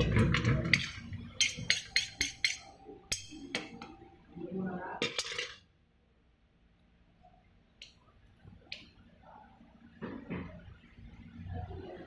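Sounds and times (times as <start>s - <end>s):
metal spoon clinking against bowl: 0.4s - 3.9s.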